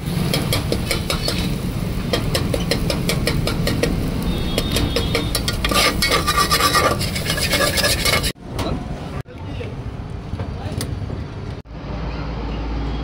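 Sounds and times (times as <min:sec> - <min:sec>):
metal spatula scraping a pot: 0:00.3 - 0:01.5, 0:04.5 - 0:08.4.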